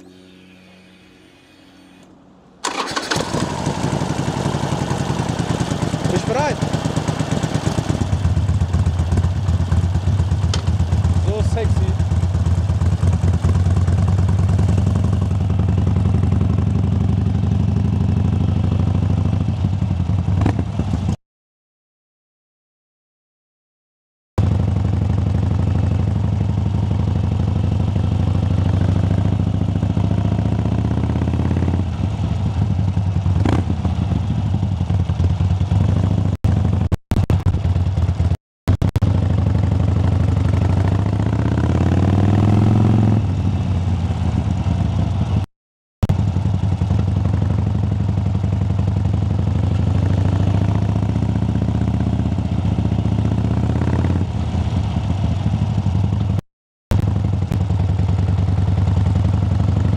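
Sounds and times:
motorcycle engine running hard: 2.6s - 21.2s, 24.4s - 59.9s.

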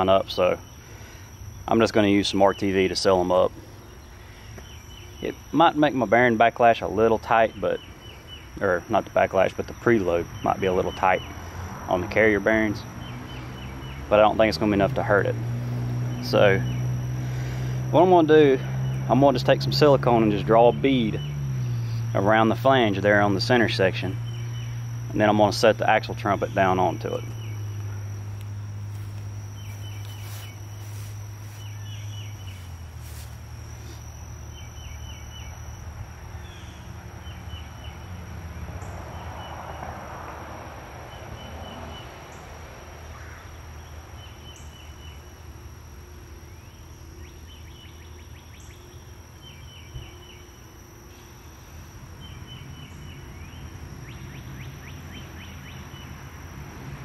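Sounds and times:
steady low hum: 0.0s - 57.0s
thin high whine: 0.0s - 57.0s
bird chirping: 3.8s - 5.6s, 7.4s - 8.8s, 12.7s - 14.4s, 15.7s - 17.3s, 24.0s - 33.2s, 33.8s - 39.8s, 43.2s - 45.3s, 46.4s - 50.5s, 51.1s - 56.2s.

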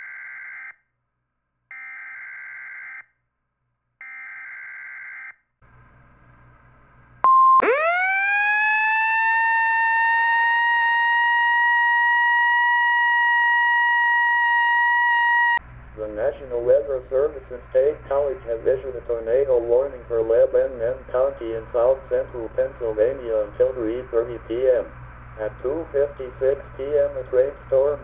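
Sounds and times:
faint hum: 5.7s - 28.0s
loud rising alarm tone: 7.3s - 28.0s.

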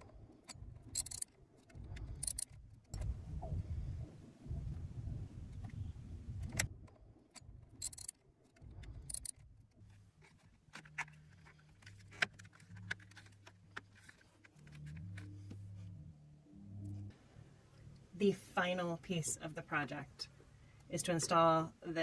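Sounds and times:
metal tool clinks: 1.0s - 1.2s, 7.8s - 8.1s
socket ratchet clicking: 1.0s - 2.5s, 7.8s - 8.2s, 9.0s - 9.4s.

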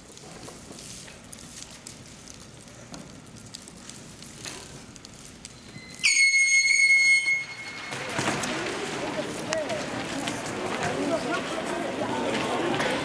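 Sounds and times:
high-pitched signal tone: 5.7s - 8.1s
murmur of voices: 7.7s - 13.0s.

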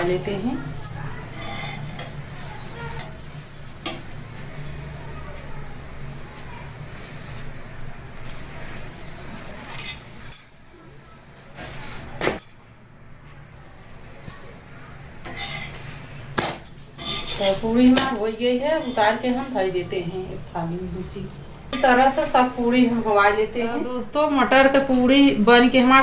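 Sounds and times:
metal spatula scraping pan: 0.0s - 4.8s, 9.7s - 10.5s, 15.2s - 19.9s, 21.7s - 23.1s
puri sizzling on a hot pan: 0.0s - 24.9s.

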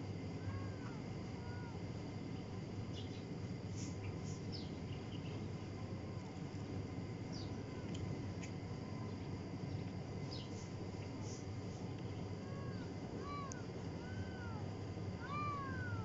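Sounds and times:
faint bird chirps: 2.9s - 5.4s, 7.3s - 14.6s
soft high arched calls: 15.2s - 16.0s.

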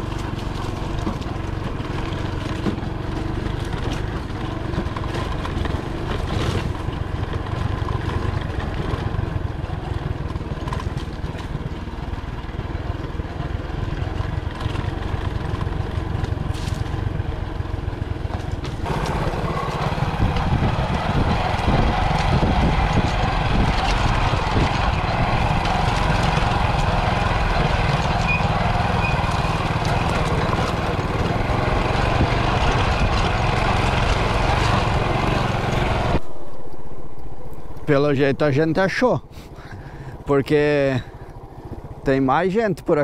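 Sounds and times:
motorcycle engine running: 0.0s - 36.6s
wind rumble: 18.4s - 42.3s.

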